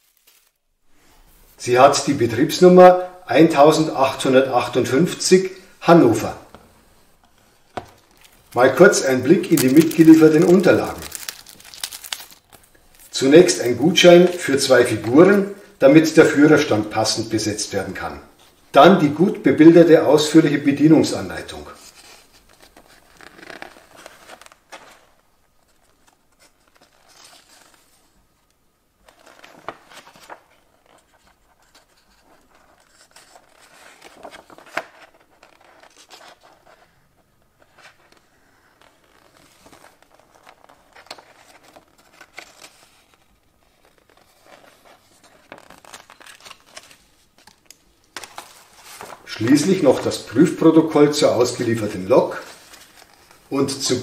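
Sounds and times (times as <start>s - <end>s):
paper pages rustling: 0.0s - 0.6s, 6.1s - 15.6s, 21.4s - 28.2s, 29.0s - 54.0s.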